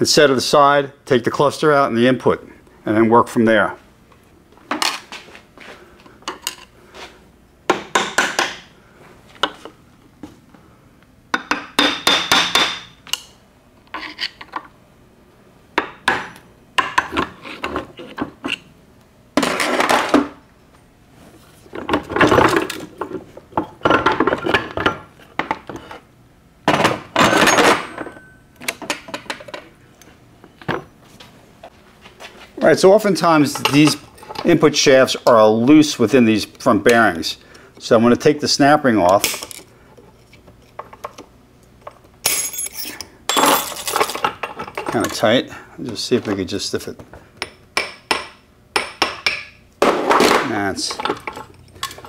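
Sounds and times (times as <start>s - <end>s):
metal tools clinking and clanking: 27.2s - 29.6s, 33.5s - 34.5s, 41.8s - 45.3s, 50.8s - 52.0s.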